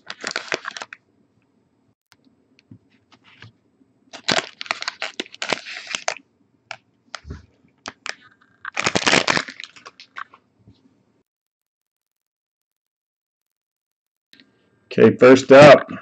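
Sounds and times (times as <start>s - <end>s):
foil wrapper crinkling: 0.0s - 1.0s, 4.1s - 10.4s.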